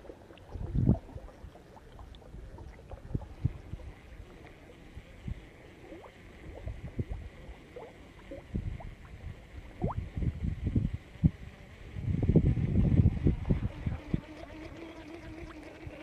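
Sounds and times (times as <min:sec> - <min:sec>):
water sloshing from wading: 0:00.0 - 0:05.0.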